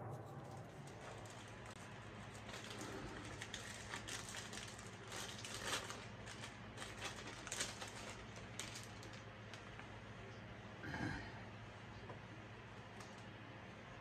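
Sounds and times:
wrapper crackling and rustling: 0:00.9 - 0:10.1.

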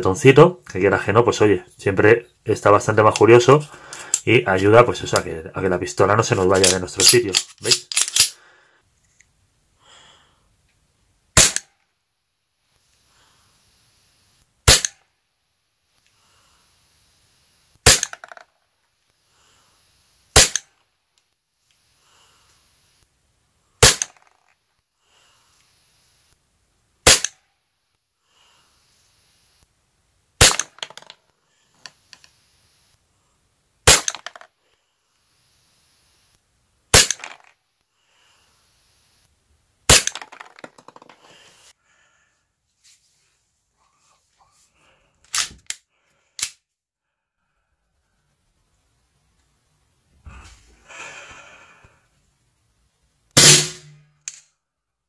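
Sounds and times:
airsoft pistol shots: 0:11.4 - 0:11.8, 0:14.7 - 0:15.0, 0:17.8 - 0:18.2, 0:20.4 - 0:20.7, 0:23.8 - 0:24.2, 0:27.0 - 0:27.4, 0:30.4 - 0:30.8, 0:33.9 - 0:34.4, 0:36.9 - 0:37.4, 0:39.9 - 0:40.5, 0:53.4 - 0:54.0.

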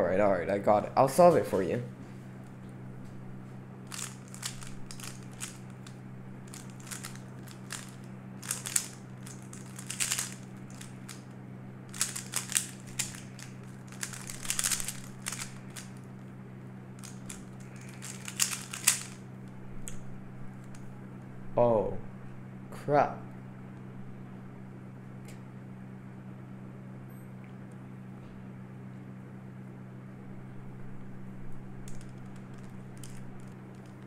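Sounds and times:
steady low hum: 0:00.0 - 0:34.0
puzzle cube clicking: 0:03.9 - 0:05.7, 0:06.5 - 0:11.2, 0:11.9 - 0:15.9, 0:17.0 - 0:19.2, 0:31.9 - 0:34.0.

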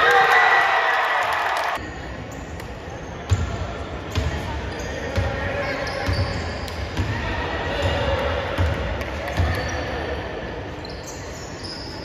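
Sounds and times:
basketball bouncing on gym floor: 0:03.3 - 0:03.6.

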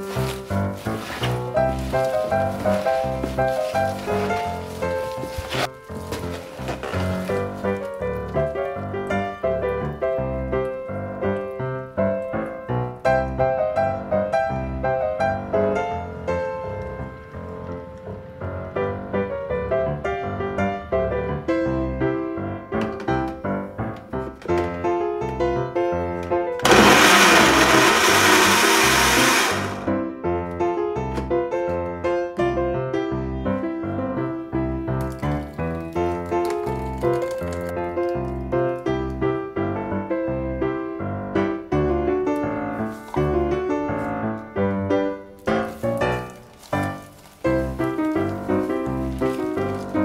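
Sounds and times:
light piano background music: 0:00.0 - 0:26.7, 0:29.8 - 0:50.0
personal blender running: 0:26.6 - 0:29.9.

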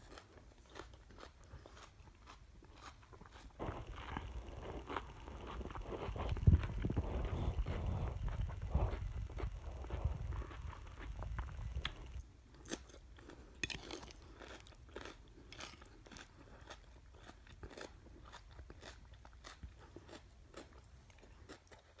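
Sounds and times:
chewing crisp salad: 0:00.0 - 0:22.0.

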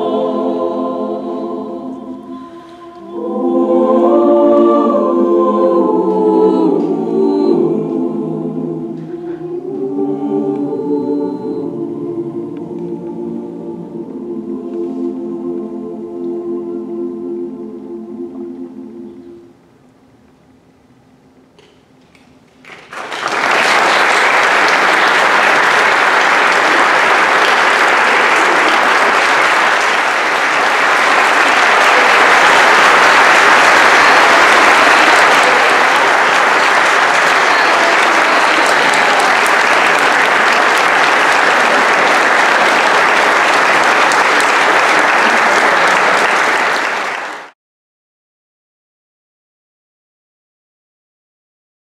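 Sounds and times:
audience applauding: 0:22.6 - 0:47.6.

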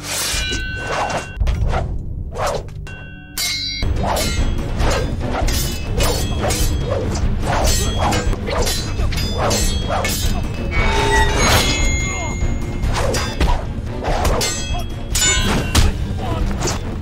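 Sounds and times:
dramatic film score: 0:00.0 - 0:17.0
pole and sword whacks and clashes: 0:12.9 - 0:16.9.

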